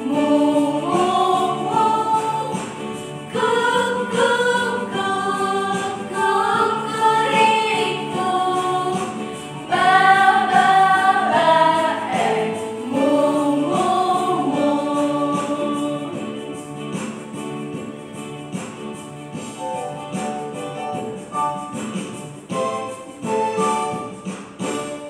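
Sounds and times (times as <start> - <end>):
women singing in unison: 0.0 - 16.4
electronic keyboard: 0.0 - 25.0.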